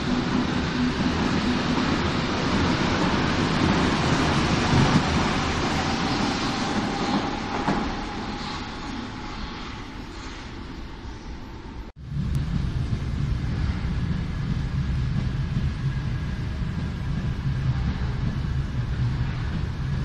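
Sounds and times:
train knocks: 0.0s - 8.8s
train wheels rumbling: 0.0s - 20.0s.

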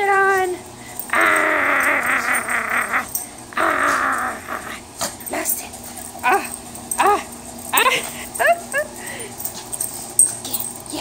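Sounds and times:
dog growling: 1.0s - 5.3s.

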